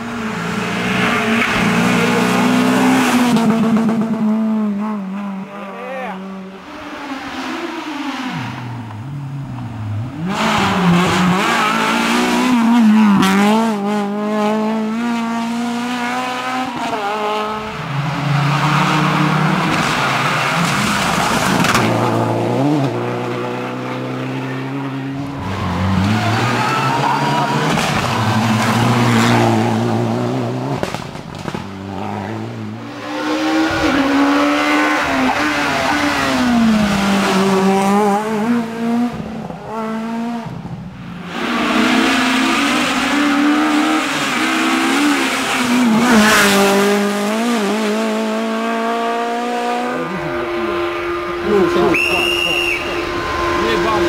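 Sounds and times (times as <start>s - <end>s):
rally cars passing at speed: 0.0s - 54.0s.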